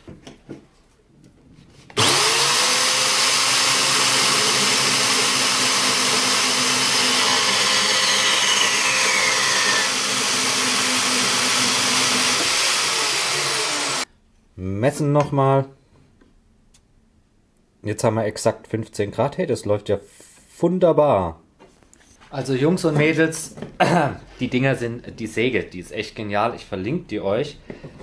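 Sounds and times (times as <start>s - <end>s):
band saw motor running: 2.0s - 14.1s
saw blade cutting steel tube: 2.0s - 14.1s.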